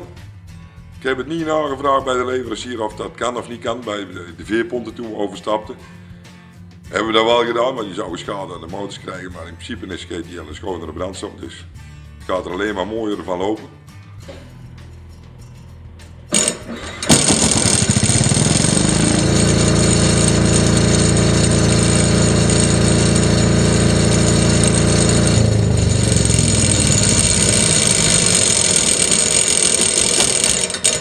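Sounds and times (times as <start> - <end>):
diesel generator starting and running: 15.8 - 31.0.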